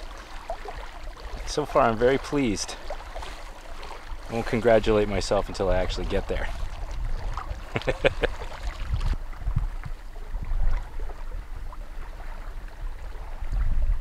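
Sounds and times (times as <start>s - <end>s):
water lapping around boat: 0.0s - 14.0s
wind rumble on microphone: 3.2s - 14.0s.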